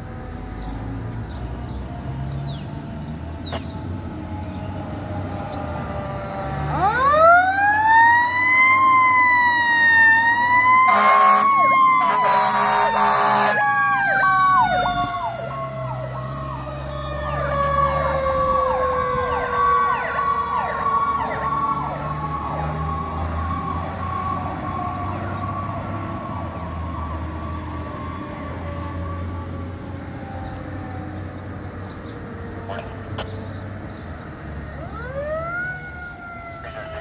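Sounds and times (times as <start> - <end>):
fire engine siren wailing: 1.6 - 33.3, 34.0 - 37.0
electronic siren yelp: 6.8 - 25.7, 34.8 - 37.0
air horn blasts: 10.9 - 13.6.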